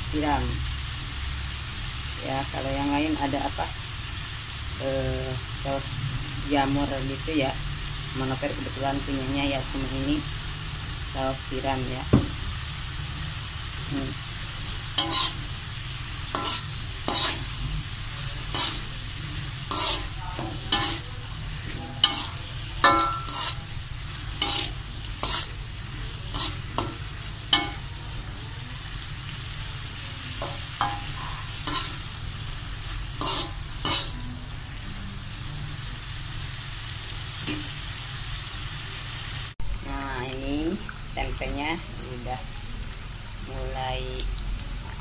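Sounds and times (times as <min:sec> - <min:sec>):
food sizzling: 0:00.0 - 0:45.0
spatula scraping and knocking wok: 0:13.9 - 0:28.4, 0:29.6 - 0:34.2, 0:37.2 - 0:37.9.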